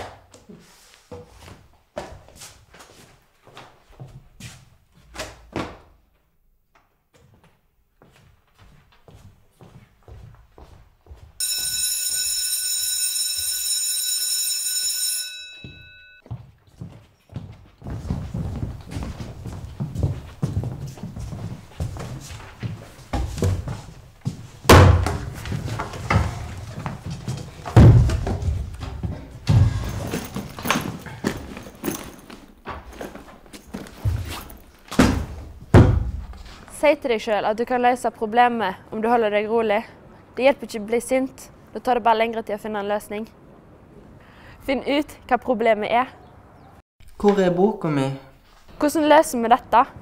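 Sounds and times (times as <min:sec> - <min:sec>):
electric bell ringing: 0:11.4 - 0:16.2.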